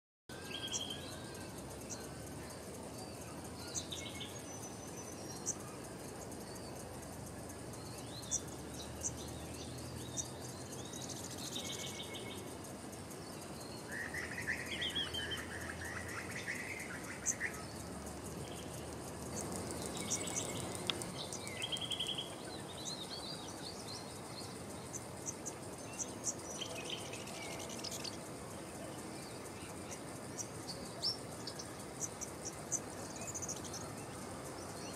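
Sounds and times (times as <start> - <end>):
high insect trill: 0.3 - 34.9
birds chirping and calling: 19.3 - 24.2.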